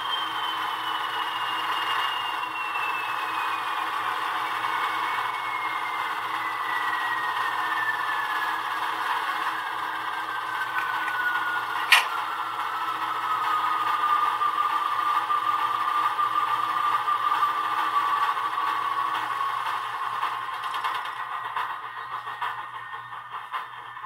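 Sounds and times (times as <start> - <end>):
model diesel engine sound whining: 0.0 - 24.0
sharp click: 11.8 - 12.1.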